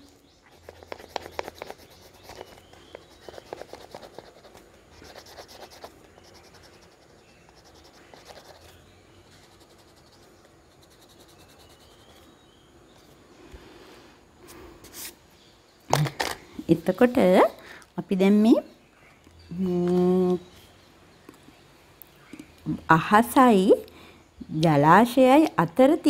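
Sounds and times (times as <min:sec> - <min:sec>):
pastel scratching on paper: 0:00.4 - 0:12.2.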